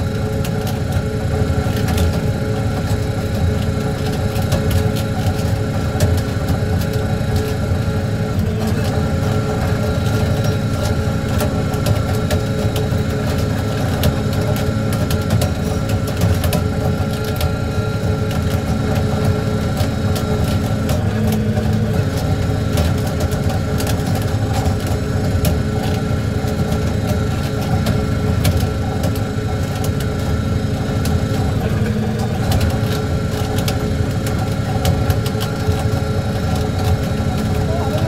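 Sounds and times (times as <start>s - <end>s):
diesel engine low hum: 0.0s - 38.0s.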